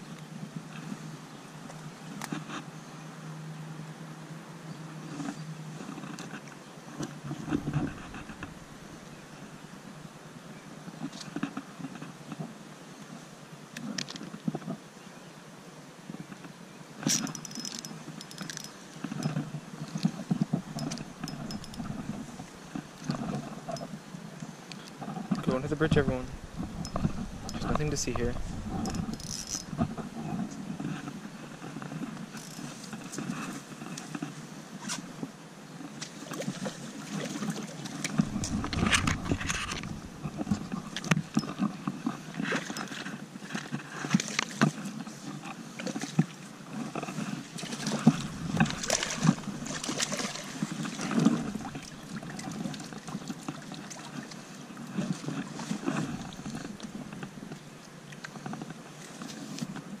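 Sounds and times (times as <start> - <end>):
knocks and handling rustle: 5.1 - 9.2, 16.1 - 60.0
low rumbling: 20.5 - 24.0, 25.4 - 30.8, 38.1 - 41.5, 48.0 - 50.4
fish splashing: 47.6 - 52.8.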